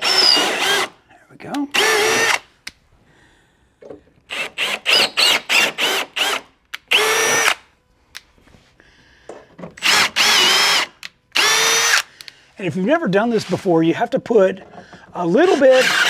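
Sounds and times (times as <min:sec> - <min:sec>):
cordless drill motor whine: 0:00.0 - 0:01.0, 0:01.8 - 0:02.4, 0:04.3 - 0:07.6, 0:09.8 - 0:12.1, 0:15.7 - 0:16.0.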